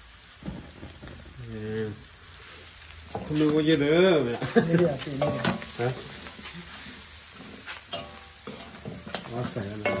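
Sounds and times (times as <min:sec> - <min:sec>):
meat sizzling in a wok: 0:00.0 - 0:10.0
metal spatula scraping a pan: 0:04.8 - 0:10.0.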